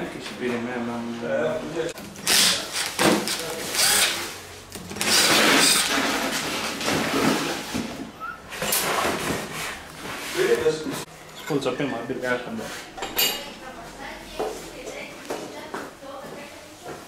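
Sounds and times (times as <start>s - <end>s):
workshop tool noise: 1.9s - 13.6s.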